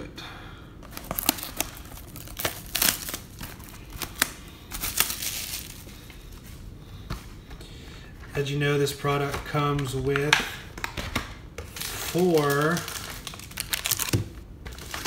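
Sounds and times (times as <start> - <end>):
plastic wrapping crinkling and tearing: 0.8 - 6.5, 9.2 - 15.0.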